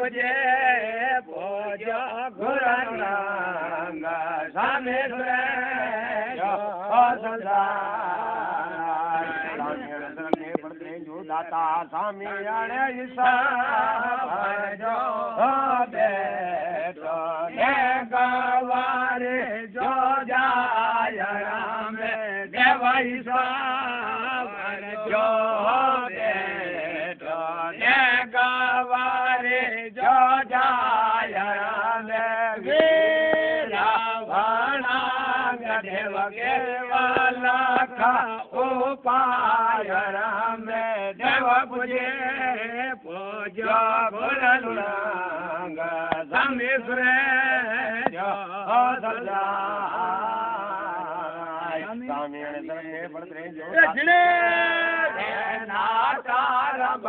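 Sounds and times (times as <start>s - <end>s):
man chanting: 0.0s - 57.0s.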